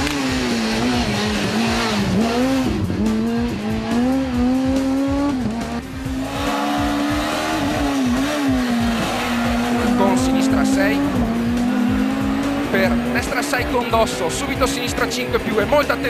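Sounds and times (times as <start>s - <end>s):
rally car engine revving: 0.0s - 16.0s.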